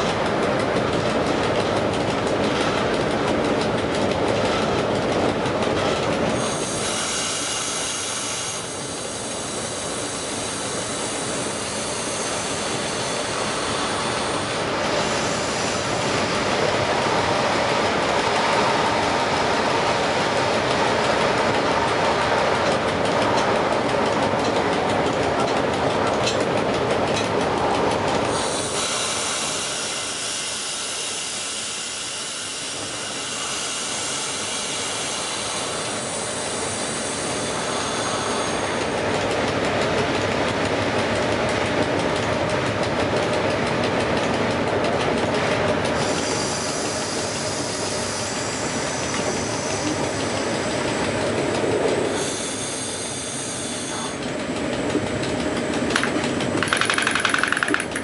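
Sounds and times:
locomotive cab running rumble: 0:00.0 - 0:06.9, 0:12.5 - 0:28.8, 0:35.1 - 0:58.0.

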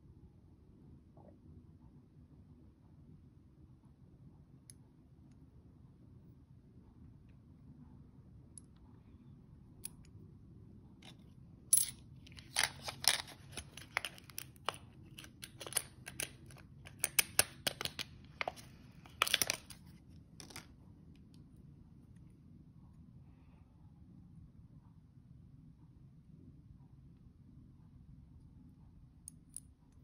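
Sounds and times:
plastic clicks and crinkles: 0:12.3 - 0:20.8.

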